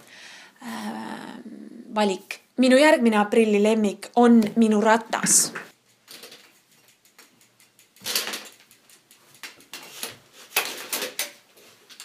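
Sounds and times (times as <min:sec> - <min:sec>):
bicycle rattling and knocking: 0:06.1 - 0:09.9.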